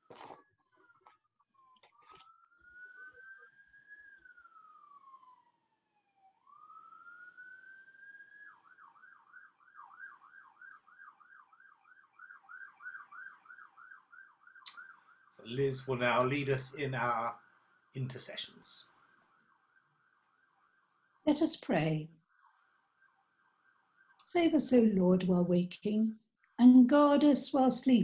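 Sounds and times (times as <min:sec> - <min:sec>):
siren wailing and yelping: 0:00.4 - 0:17.4.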